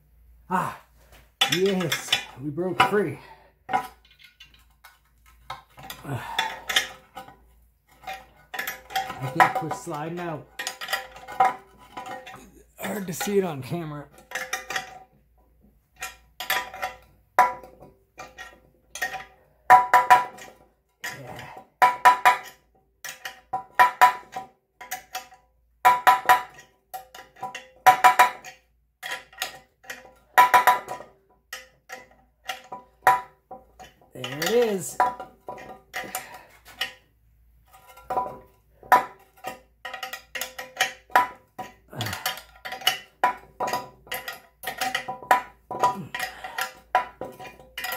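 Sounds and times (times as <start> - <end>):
wrench clinking on steel: 1.4 - 15.1, 16.0 - 37.0, 37.6 - 47.9.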